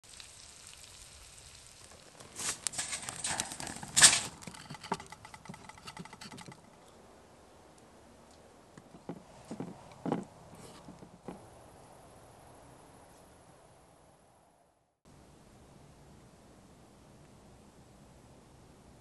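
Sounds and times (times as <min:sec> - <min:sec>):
wood fire crackling and popping: 0:00.1 - 0:06.6.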